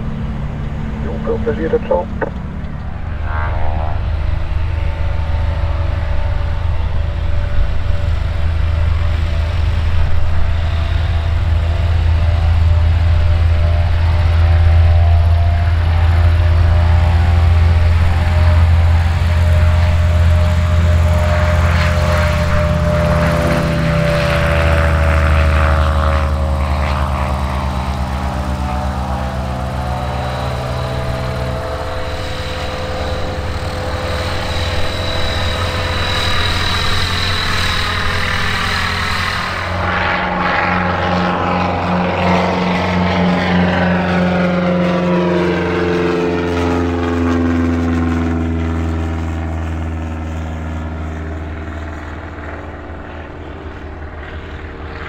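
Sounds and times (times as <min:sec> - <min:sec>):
propeller aircraft engine running: 0:00.0 - 0:55.0.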